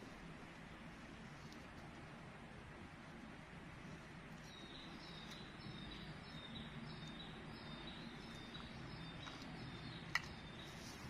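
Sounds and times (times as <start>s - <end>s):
low background hum: 0.0s - 11.0s
high chirping bird or insect: 4.5s - 10.9s.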